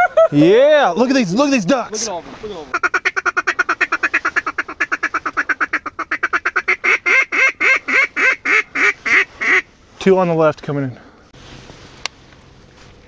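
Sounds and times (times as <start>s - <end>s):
duck call quacking: 2.7s - 9.7s.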